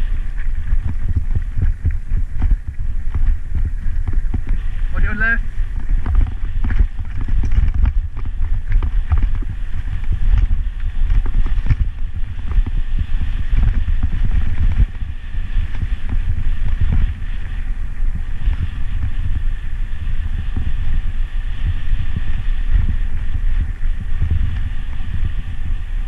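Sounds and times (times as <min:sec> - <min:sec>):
bicycle rattling over stones: 0:00.0 - 0:21.2
bicycle rolling on rough road: 0:00.0 - 0:26.0.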